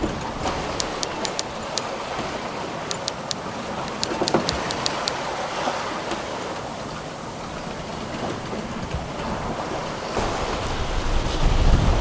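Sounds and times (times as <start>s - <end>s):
sharp clicks and ticks: 0.0s - 0.2s, 0.8s - 2.0s, 2.9s - 5.2s
water rushing around boat: 0.0s - 12.0s
wind: 0.0s - 12.0s.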